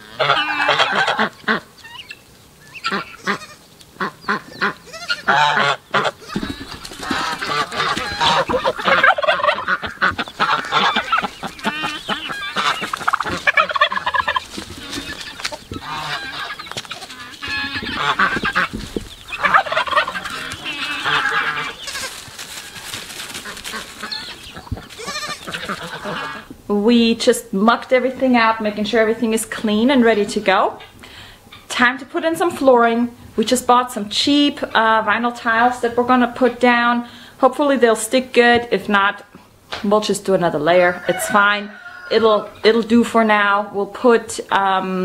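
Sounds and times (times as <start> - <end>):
geese honking: 0.0 - 26.5, 40.7 - 42.7
poultry calls: 0.0 - 26.5, 40.8 - 42.7.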